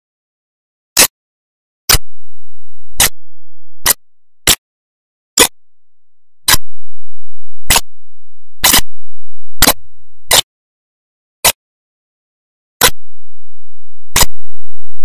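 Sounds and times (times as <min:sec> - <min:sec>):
short sharp clicks: 0:07.7 - 0:07.9, 0:12.8 - 0:13.0, 0:14.1 - 0:14.5.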